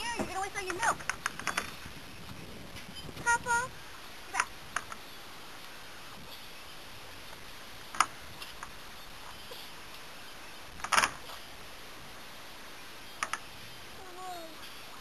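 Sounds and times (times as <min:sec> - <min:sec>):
sharp clicks and knocks: 0:13.2 - 0:13.5.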